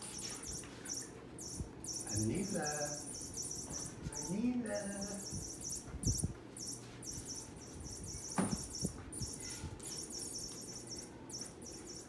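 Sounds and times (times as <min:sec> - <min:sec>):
insects chirping: 0:00.0 - 0:12.0
soft thump: 0:08.3 - 0:08.7.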